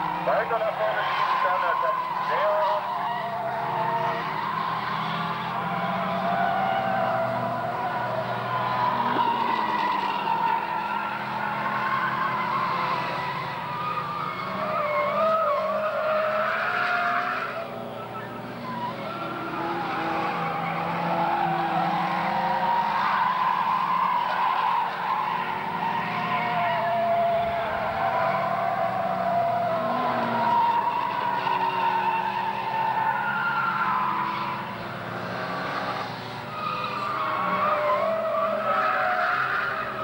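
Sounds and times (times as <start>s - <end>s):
race car engines: 0.0s - 40.0s.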